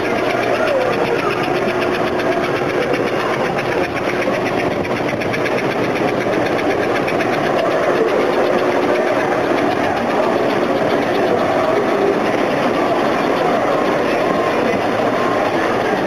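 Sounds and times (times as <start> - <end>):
model train rattling on track: 0.0 - 16.0.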